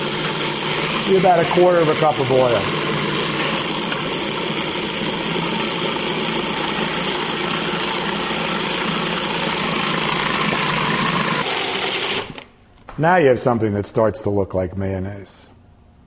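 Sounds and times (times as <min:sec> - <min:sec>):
food processor grinding: 0:00.0 - 0:12.5.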